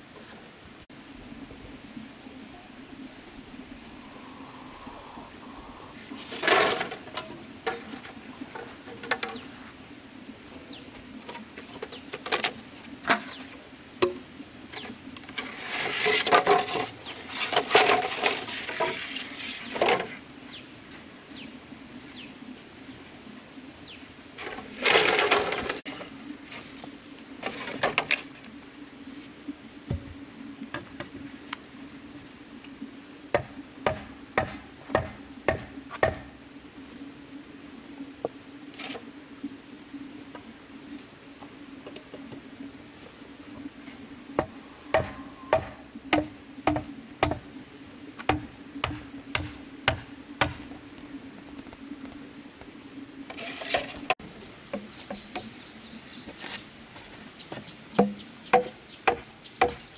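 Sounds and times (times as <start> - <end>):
scraping rustling noise: 5.9 - 9.8, 15.3 - 20.2, 24.4 - 28.4, 53.3 - 54.2, 56.0 - 57.7
sharp knocks: 33.3 - 36.4, 44.4 - 47.4.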